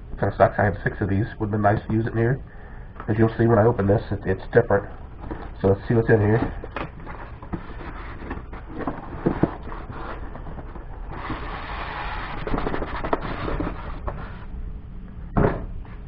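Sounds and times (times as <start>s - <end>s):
box sliding out of cardboard sleeve: 7.1s - 14.5s.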